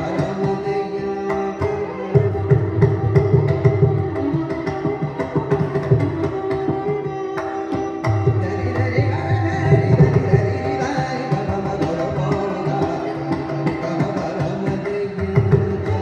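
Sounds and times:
person singing: 0.0 - 2.8, 8.1 - 16.0
violin accompaniment: 0.0 - 16.0.

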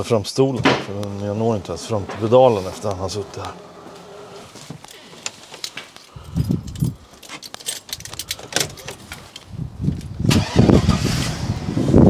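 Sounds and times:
car engine cranking and starting: 1.4 - 12.0
car seat clicks and rattles: 4.6 - 11.0.

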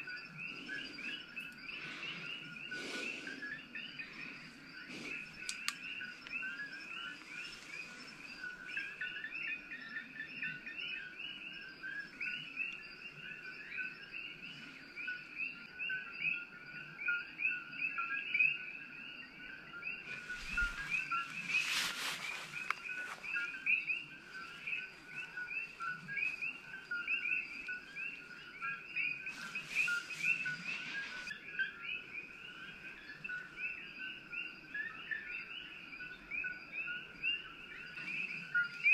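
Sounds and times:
chorus of frogs chirping: 0.0 - 38.9
rustling: 20.1 - 26.8, 29.2 - 31.3.

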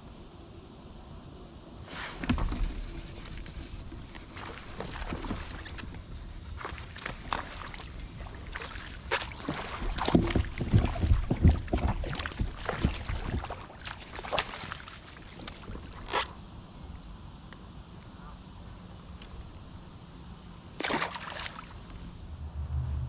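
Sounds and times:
water sloshing around kayak: 1.9 - 16.4.

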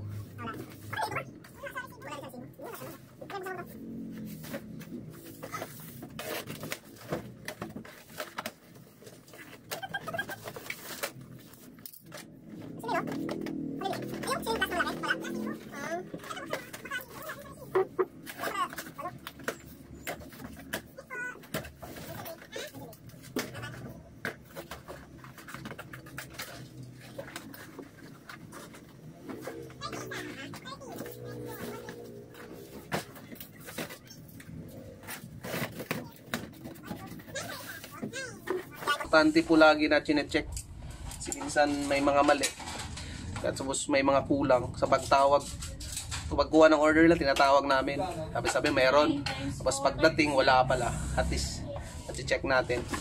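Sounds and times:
cardboard boxes rustling and knocking: 2.5 - 39.3.

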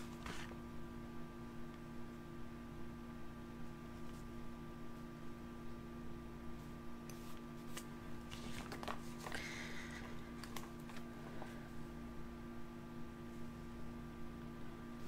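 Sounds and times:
paper rustle: 0.0 - 0.6, 7.7 - 9.5
faint hum: 0.0 - 15.0.

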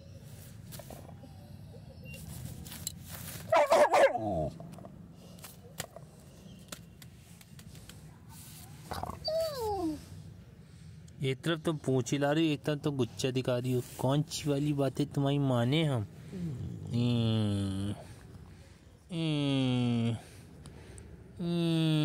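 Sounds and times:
dog grumbling call: 16.3 - 18.1.

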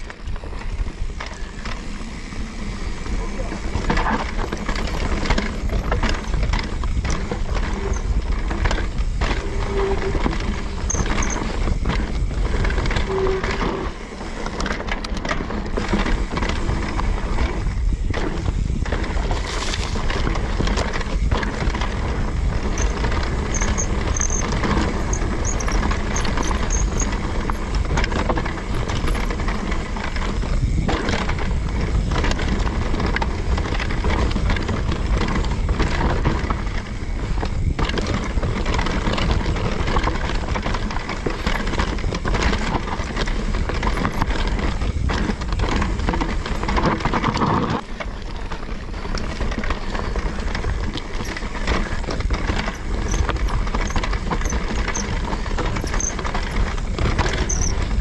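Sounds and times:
bike clattering over rough ground: 0.0 - 58.0
tyres rolling over dirt trail: 0.0 - 58.0
wind rushing over microphone: 0.0 - 58.0.

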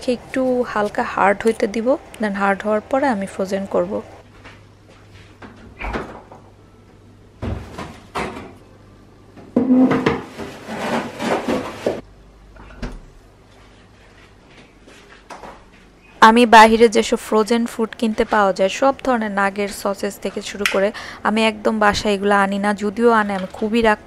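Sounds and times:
faint steady hum: 0.0 - 9.8, 12.0 - 24.0
freezer door thud: 7.4 - 8.6.

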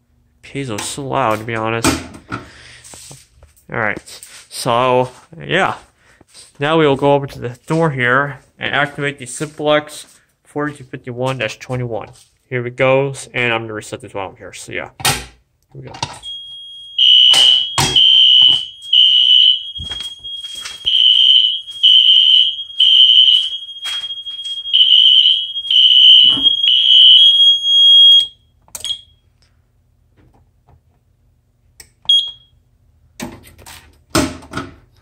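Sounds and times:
pulsing electronic fire alarm horn: 16.3 - 28.4
steady high tone: 16.5 - 28.2.

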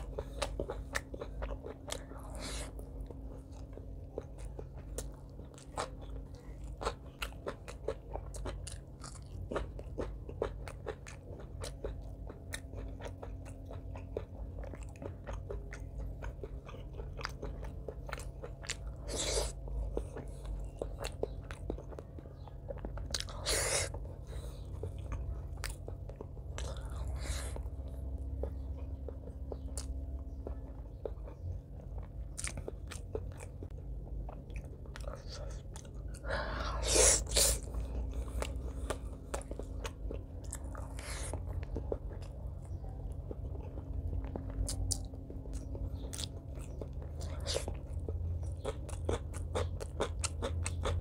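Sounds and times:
chewing with wet mouth clicks: 0.0 - 51.0
crunchy bites: 0.0 - 51.0.

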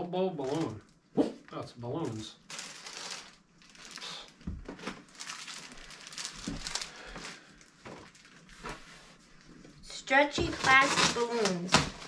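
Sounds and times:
plastic packaging crinkling: 2.0 - 8.8, 10.4 - 12.0.

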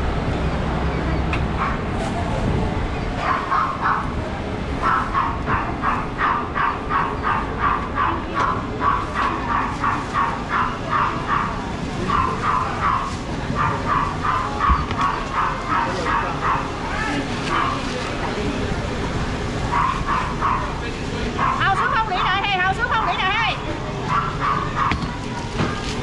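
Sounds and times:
dog yapping: 3.2 - 4.1, 4.8 - 17.8, 19.7 - 20.7, 21.4 - 21.8, 24.1 - 25.8.

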